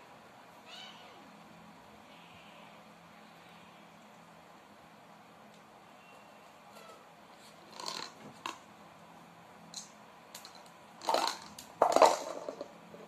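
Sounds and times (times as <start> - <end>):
plastic basket clattering on floor: 11.0 - 12.8.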